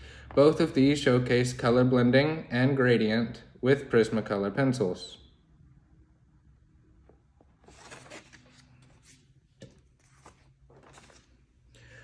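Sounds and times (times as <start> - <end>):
paper rustling and sliding: 7.6 - 11.7.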